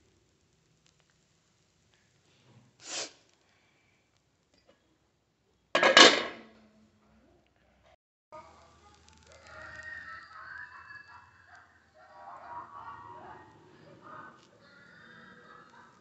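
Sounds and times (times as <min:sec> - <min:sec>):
metal lid clattering: 0:05.8 - 0:06.5.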